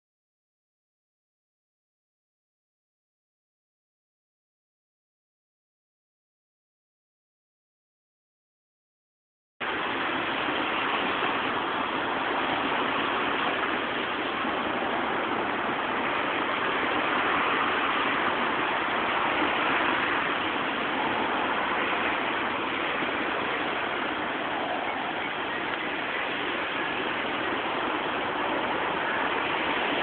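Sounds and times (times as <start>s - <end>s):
steady rushing noise: 9.6s - 30.0s.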